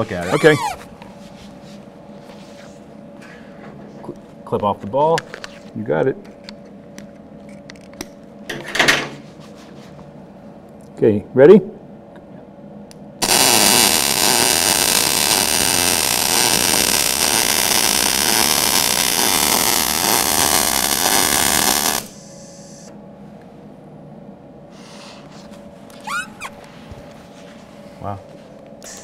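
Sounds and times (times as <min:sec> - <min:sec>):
welding arc sizzling: 0:13.2 - 0:22.9.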